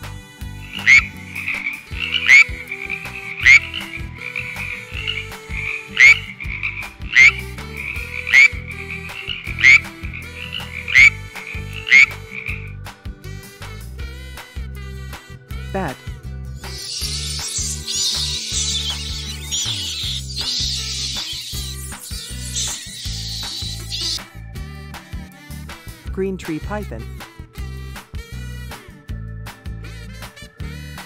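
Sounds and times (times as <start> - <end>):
frog croaks: 0.6 - 12.8, 16.7 - 24.2
frogs trilling chorus: 0.6 - 12.8, 16.6 - 24.2.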